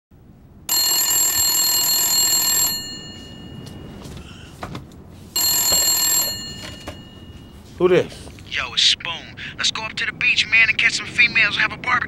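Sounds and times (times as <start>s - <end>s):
telephone bell ringing: 0.7s - 4.1s, 5.4s - 7.7s.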